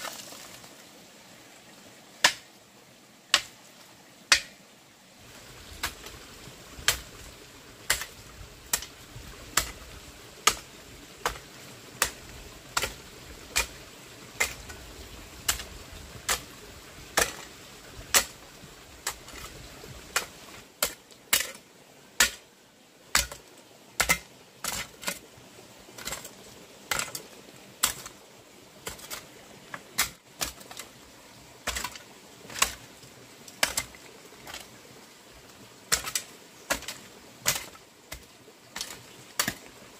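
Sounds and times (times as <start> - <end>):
hand tool striking: 4.3 - 4.6, 35.9 - 38.2.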